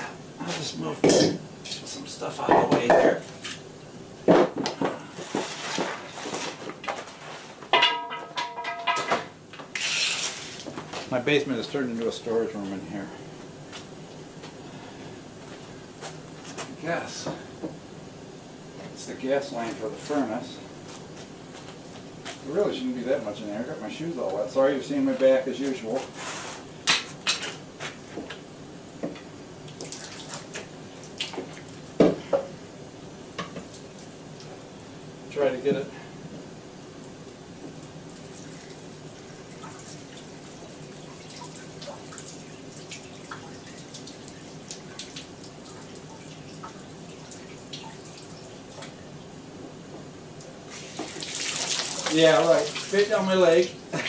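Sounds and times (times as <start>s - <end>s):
knocks and metallic clatter: 7.6s - 9.4s
water dripping and trickling: 29.7s - 31.8s, 37.7s - 49.4s, 50.4s - 53.6s.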